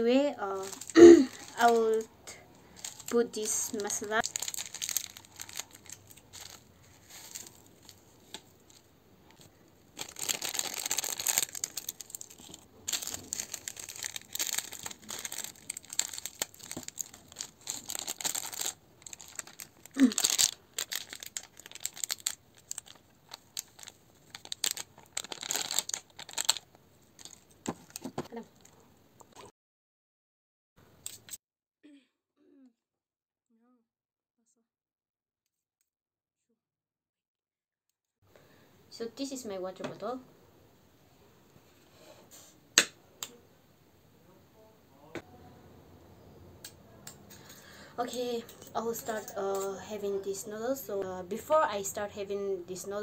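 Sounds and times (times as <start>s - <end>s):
plastic sachets tearing and crinkling: 0.4s - 28.7s.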